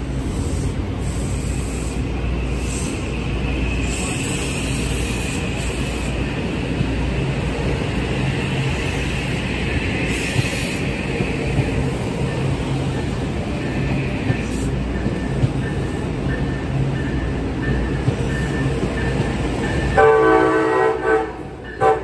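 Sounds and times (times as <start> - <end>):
train rumbling on rails: 0.0 - 22.0.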